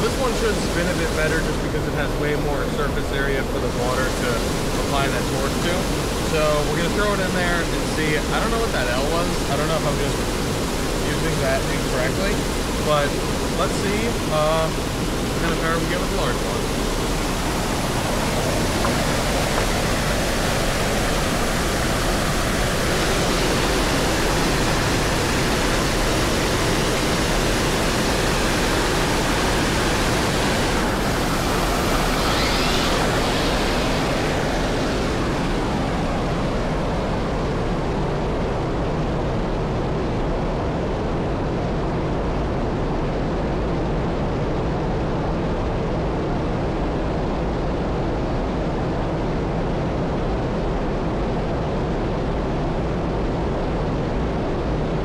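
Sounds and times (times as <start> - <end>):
waterfall rushing: 0.0 - 38.8.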